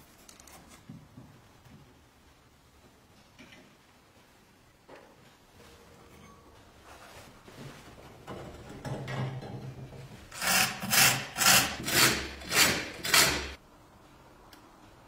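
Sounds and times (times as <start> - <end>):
rusty blade arm scraping: 10.3 - 13.6.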